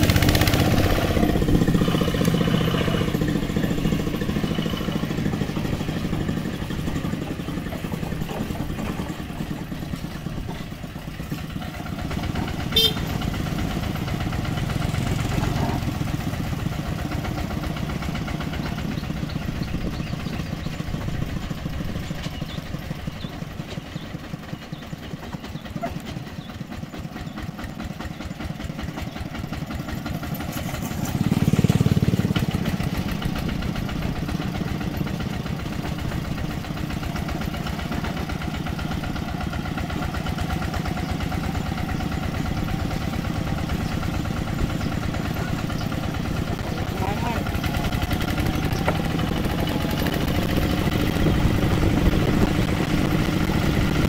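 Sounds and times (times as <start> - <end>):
motorcycle passing: 0.0 - 26.5, 29.7 - 54.0
diesel tractor engine chugging: 0.0 - 54.0.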